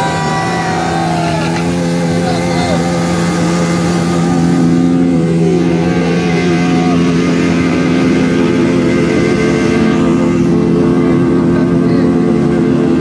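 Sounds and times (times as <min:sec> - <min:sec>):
motorcycle engine at high revs: 0:00.0 - 0:13.0.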